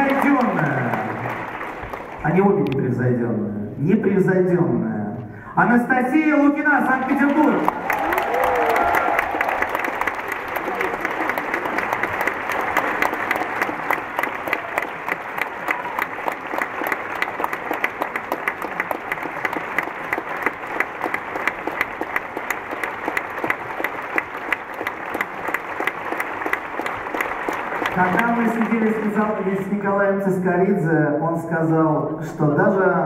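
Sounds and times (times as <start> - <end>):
audience applauding: 0.0 - 2.8, 6.8 - 30.2.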